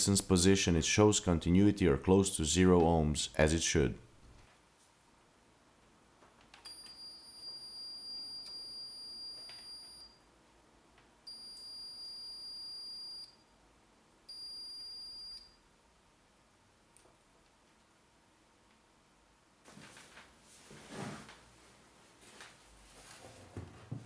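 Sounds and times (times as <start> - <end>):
multimeter high beeps: 6.7 - 10.2, 11.3 - 13.4, 14.3 - 15.6.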